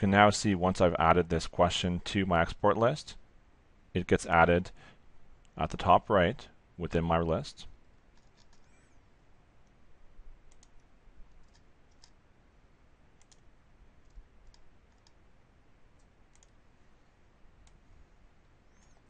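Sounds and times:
low background hiss: 0.0 - 19.0
computer mouse clicks: 8.1 - 8.9, 10.5 - 12.2, 13.2 - 15.2, 16.0 - 16.6, 17.6 - 19.0.

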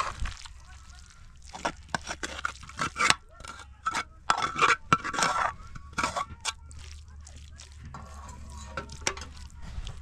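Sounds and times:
metal spoon scraping metal pan: 1.5 - 6.7, 7.8 - 9.8.

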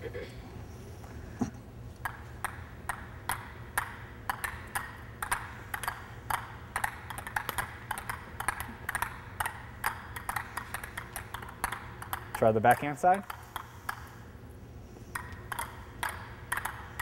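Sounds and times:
table tennis balls bouncing on rackets: 2.0 - 14.4, 15.1 - 17.0.

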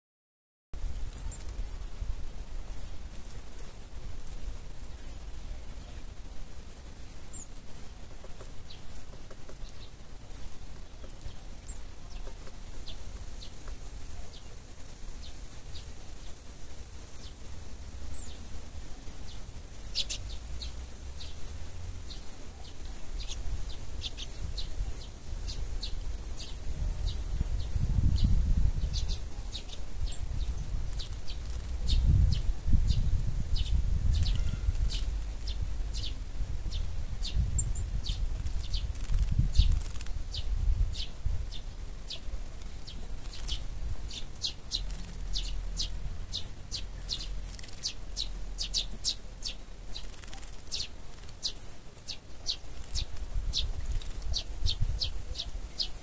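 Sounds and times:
small songbirds chirping: 0.8 - 56.0
wind rumble on microphone: 11.0 - 49.6, 52.9 - 55.8.

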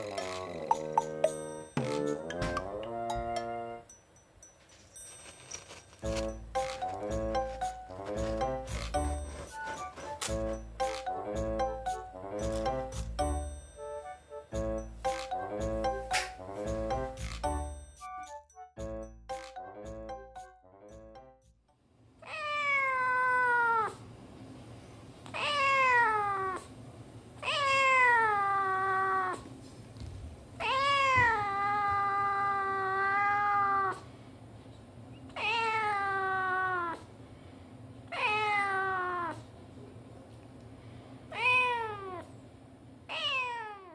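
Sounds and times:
cat meowing: 22.2 - 24.0, 25.3 - 26.7, 27.4 - 29.5, 30.6 - 34.0, 35.4 - 37.1, 38.1 - 39.5, 41.3 - 42.3, 43.1 - 43.9.

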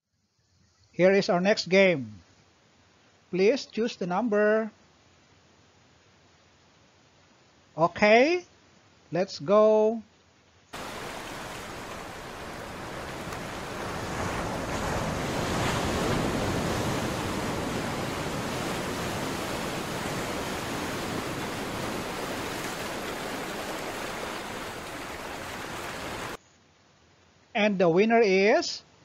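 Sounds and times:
ocean waves rushing: 10.8 - 26.4.

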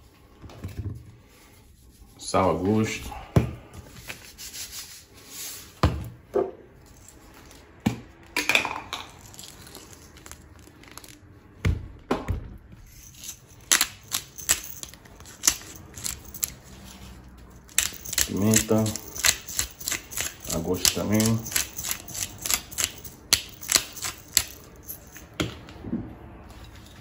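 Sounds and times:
plastic rustling: 9.0 - 11.5.

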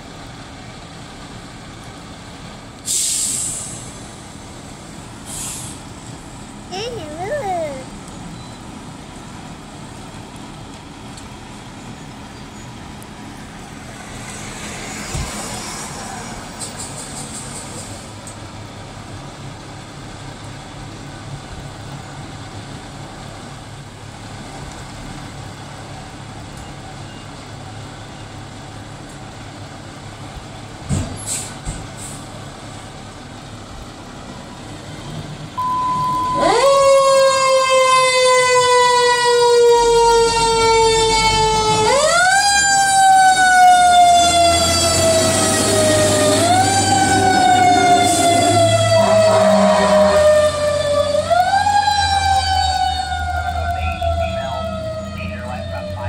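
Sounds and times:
truck engine rumble: 0.0 - 56.0
fire engine siren: 32.6 - 56.0.

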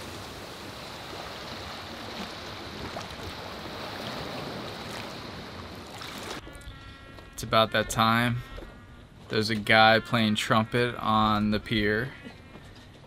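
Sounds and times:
wash of sea water: 0.0 - 6.4
light wind: 0.0 - 7.6.

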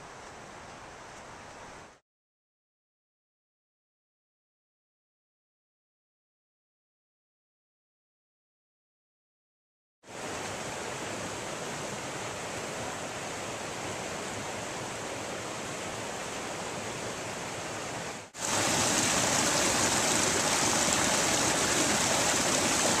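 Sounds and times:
rush of flowing water: 10.1 - 23.0.

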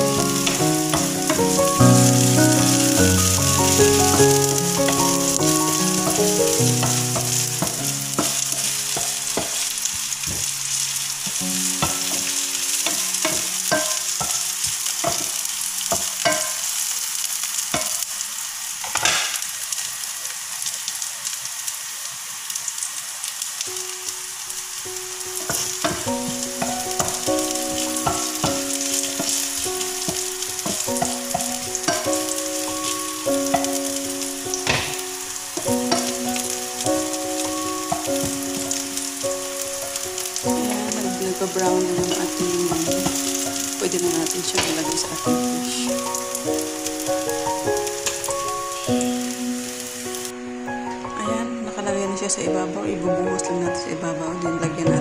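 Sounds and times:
simple tune of held notes: 0.0 - 10.5, 24.8 - 51.8
oil sizzling in a frying pan: 0.0 - 51.4
spatula scraping and clicking on pan: 11.2 - 16.7.

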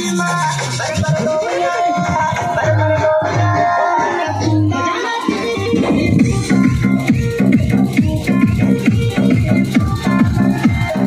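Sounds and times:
electronic dance music: 0.0 - 11.0.

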